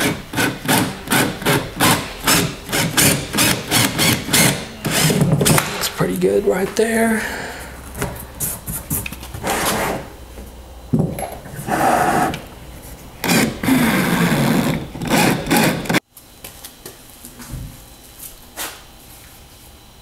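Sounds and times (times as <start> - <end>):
power drill boring into wood: 0.0 - 5.2, 13.2 - 16.0.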